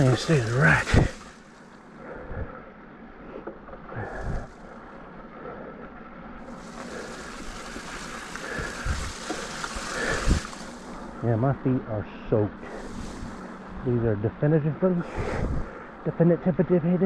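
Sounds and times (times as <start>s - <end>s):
bike riding noise hiss: 0.0s - 17.0s
wind on microphone: 7.3s - 10.7s, 15.1s - 15.7s.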